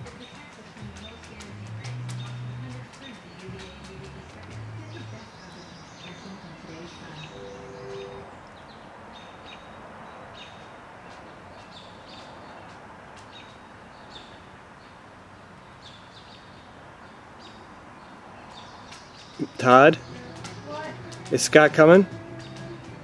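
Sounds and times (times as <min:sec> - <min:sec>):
steady outdoor hiss: 0:00.0 - 0:23.0
small bird chirping: 0:01.0 - 0:09.7.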